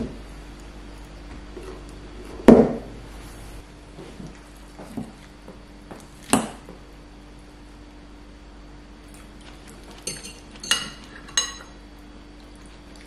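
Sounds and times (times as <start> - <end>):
forks clinking against bowls: 10.0 - 11.8.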